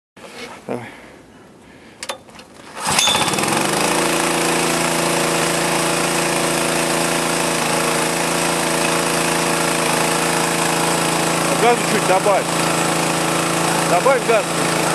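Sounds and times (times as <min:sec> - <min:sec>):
engine pull-start: 0:02.1 - 0:04.9
small petrol engine running: 0:02.7 - 0:14.9.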